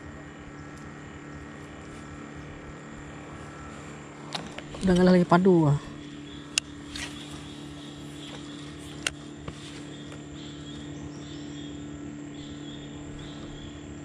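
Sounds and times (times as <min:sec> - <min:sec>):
boat motor humming: 0:00.0 - 0:14.0
faint bird chirps: 0:09.6 - 0:13.9.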